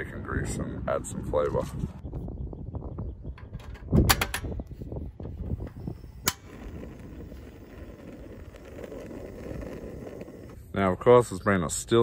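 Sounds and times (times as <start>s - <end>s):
wind rumbling on microphone: 0.0s - 10.8s.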